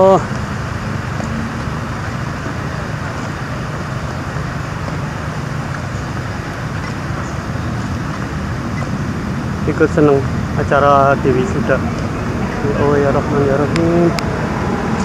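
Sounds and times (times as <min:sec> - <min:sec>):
constant hiss: 0:00.0 - 0:15.0
vehicle engines idling: 0:00.0 - 0:15.0.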